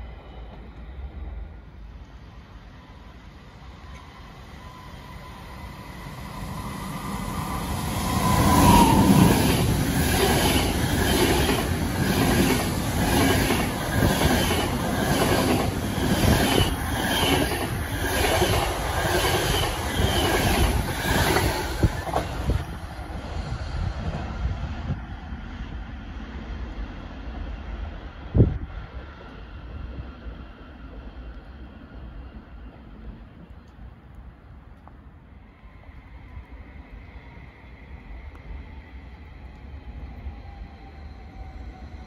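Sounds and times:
locomotive whine: 0.0s - 25.1s
train wheels clattering on rails: 8.7s - 22.6s.

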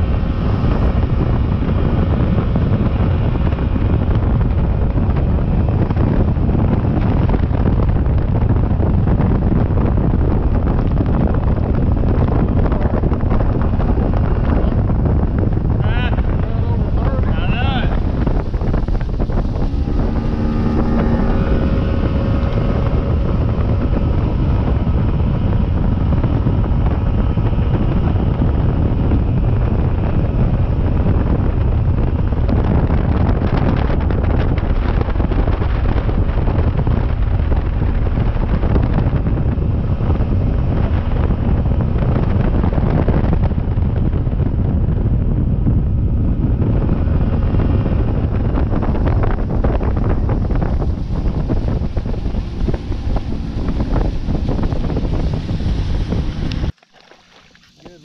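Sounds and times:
outboard motor running: 0.0s - 58.0s
wind buffeting microphone: 0.0s - 58.0s.

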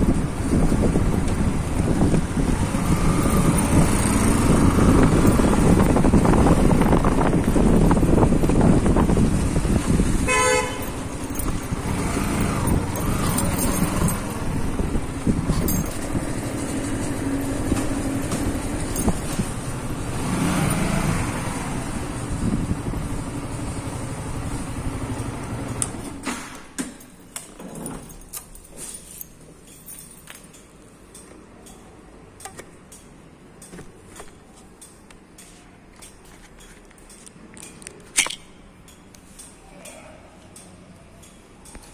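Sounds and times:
motorbike engine and road noise: 0.0s - 41.9s
short horn beep: 10.3s - 10.8s.

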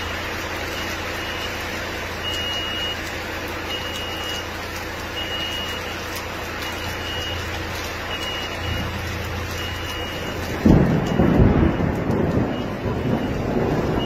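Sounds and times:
rolling thunder rumble: 8.2s - 14.0s.

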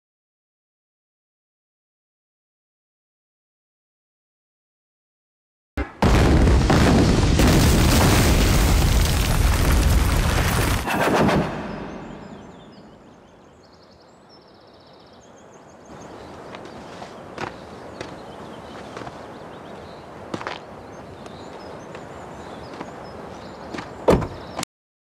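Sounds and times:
large explosion roaring blast: 6.0s - 12.8s.

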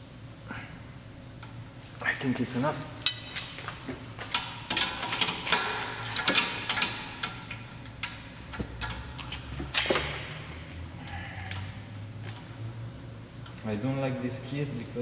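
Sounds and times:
spanner clicking on bolt: 3.0s - 10.0s.

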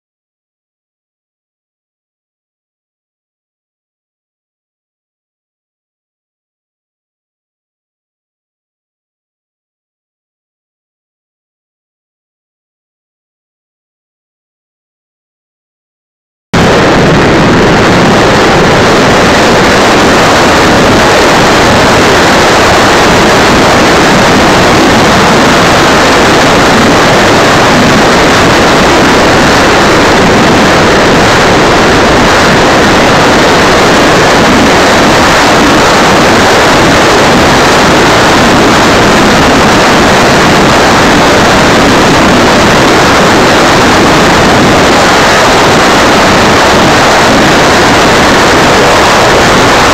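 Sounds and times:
electric ducted fans and airflow: 16.6s - 49.9s.

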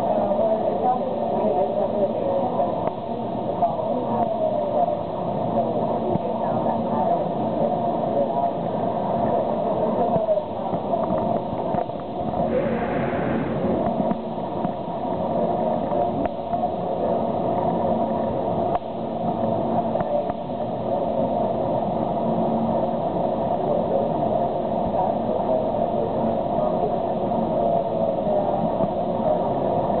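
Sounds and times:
cable car cabin humming: 12.4s - 15.0s.

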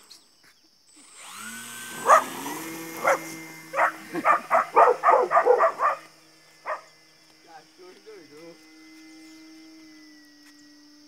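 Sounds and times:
model airplane motor humming: 0.9s - 11.0s
dog barking: 2.0s - 2.4s, 3.0s - 6.1s, 6.7s - 6.9s.

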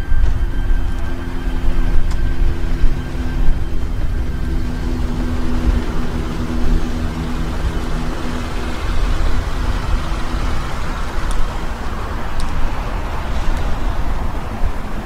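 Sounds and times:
car road and wind rumble: 0.0s - 15.0s.

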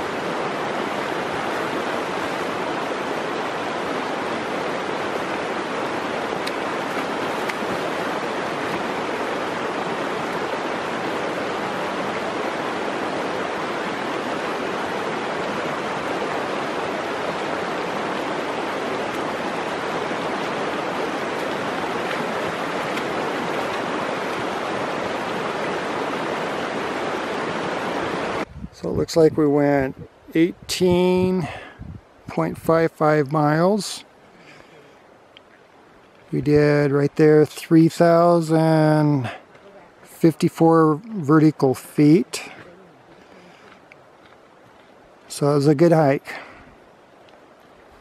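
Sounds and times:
creek water rushing over stones: 0.0s - 28.5s, 29.4s - 48.0s.

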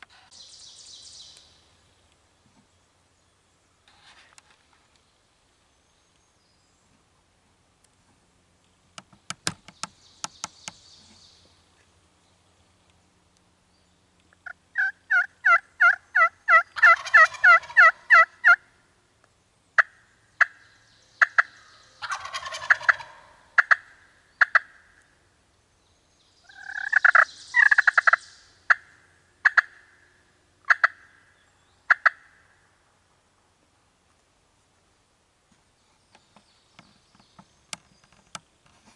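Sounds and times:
turkey clucks: 14.4s - 18.6s, 21.2s - 24.8s, 26.5s - 29.9s, 30.7s - 31.1s, 31.9s - 32.4s
wild turkey yelping: 14.4s - 18.6s, 21.2s - 24.8s, 26.5s - 30.0s, 30.6s - 31.2s, 31.9s - 32.4s.

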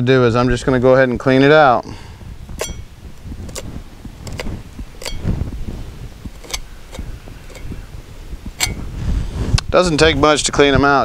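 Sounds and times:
steel tool clicking on concrete: 2.6s - 5.3s, 6.3s - 7.8s, 8.6s - 8.9s.

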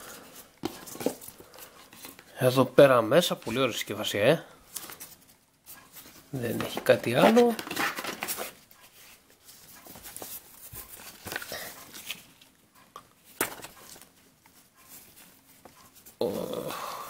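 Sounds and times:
paper and cardboard rustling: 0.0s - 2.3s, 4.7s - 12.6s, 13.2s - 16.2s.

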